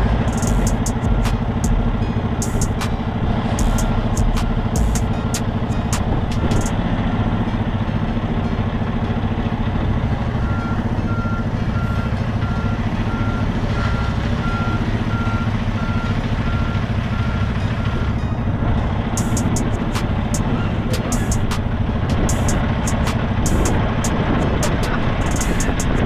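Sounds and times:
reverse alarm beeping: 0.0s - 6.7s
diesel truck engine running: 0.0s - 26.0s.

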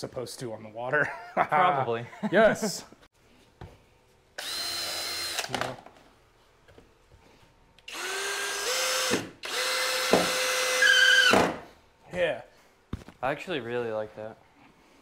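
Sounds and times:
cordless drill motor whine: 4.4s - 5.5s, 7.9s - 11.3s.

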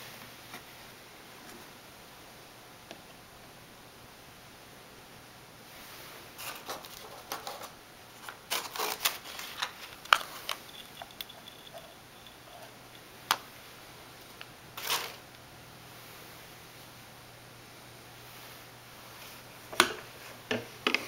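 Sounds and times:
paper filter rustling: 6.4s - 11.6s, 14.8s - 15.2s.

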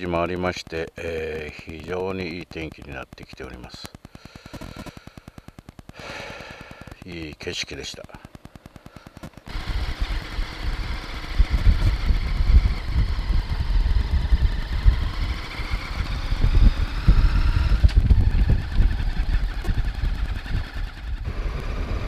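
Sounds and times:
motorcycle engine running: 9.0s - 22.0s
wind rumble on microphone: 9.6s - 22.0s.

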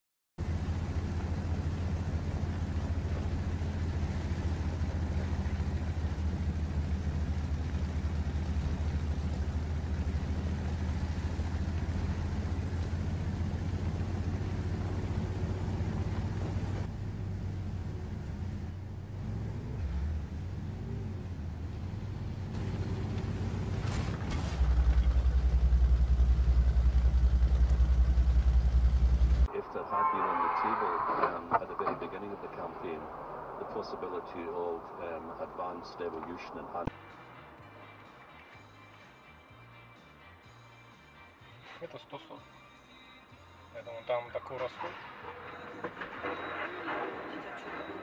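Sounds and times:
car engine idling: 0.4s - 30.1s.

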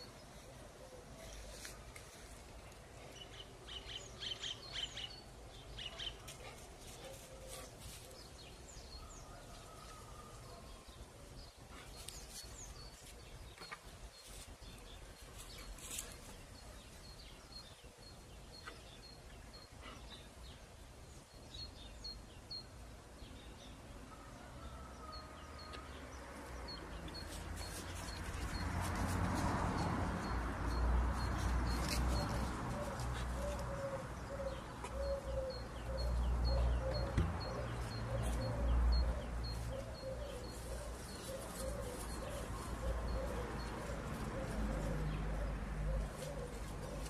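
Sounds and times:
small birds chirping: 10.0s - 24.1s, 25.5s - 47.0s.

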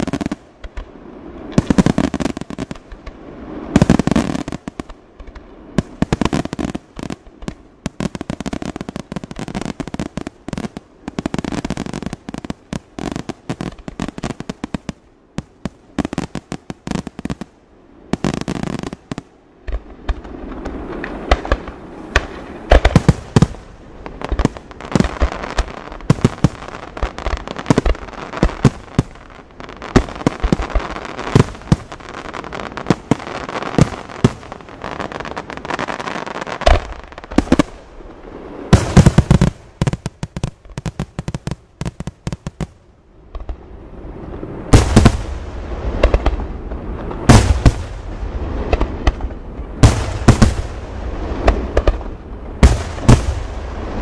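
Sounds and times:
low firework booms: 18.1s - 35.8s, 36.6s - 54.0s.

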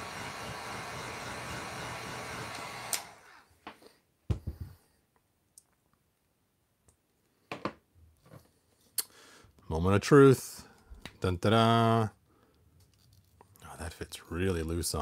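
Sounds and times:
hot-air blower running: 0.0s - 3.4s
knocks and taps on desk: 4.3s - 4.7s.

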